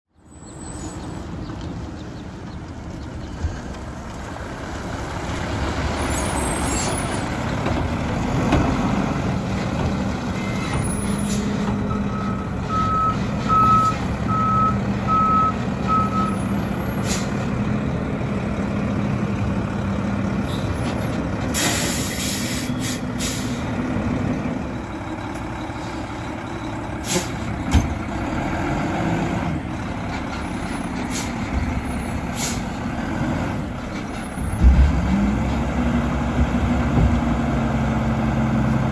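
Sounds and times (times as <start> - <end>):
backup beeps: 11.9 - 16.4
air brake hiss: 17.0 - 17.3, 21.5 - 23.7, 27.0 - 27.4, 32.3 - 32.8.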